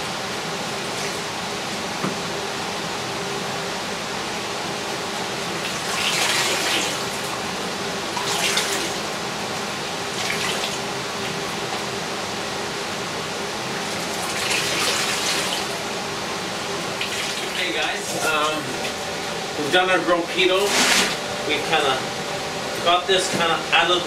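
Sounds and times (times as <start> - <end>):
steady background noise: 0.0 - 24.0
water splashing into a tub: 8.2 - 9.0, 10.2 - 10.8.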